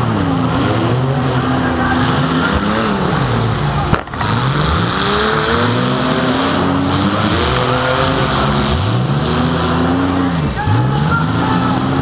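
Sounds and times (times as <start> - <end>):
car engine revving hard: 0.0 - 12.0.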